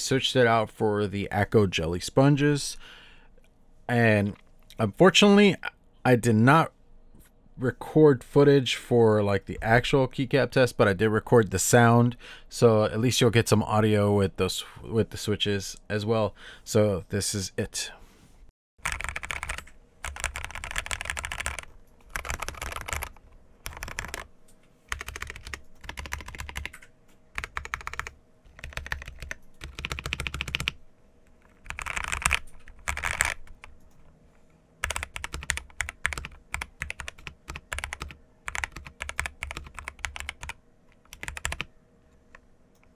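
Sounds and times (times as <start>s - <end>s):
mechanical keyboard typing: 18.8s - 24.3s, 24.9s - 30.8s, 31.4s - 34.0s, 34.8s - 41.7s.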